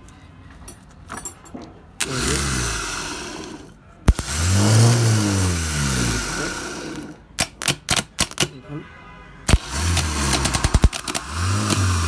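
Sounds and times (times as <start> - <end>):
starter motor whirring: 2.0 - 7.2, 9.5 - 12.0.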